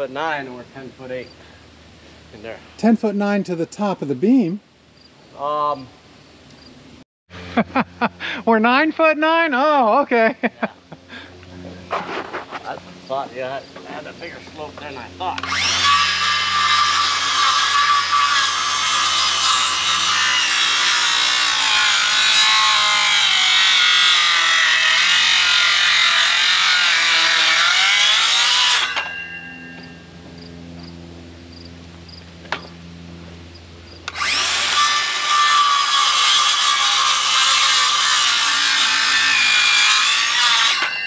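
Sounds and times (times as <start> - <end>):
circular saw cutting wood: 11.9 - 30.0, 34.1 - 41.0.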